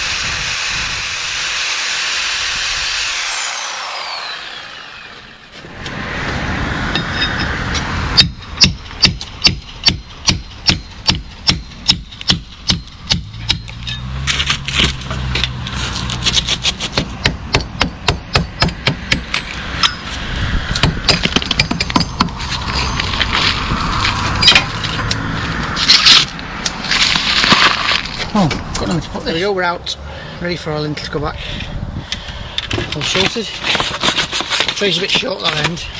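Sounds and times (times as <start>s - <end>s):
hammer striking metal: 6.9s - 14.1s, 17.0s - 20.1s, 20.8s - 22.5s.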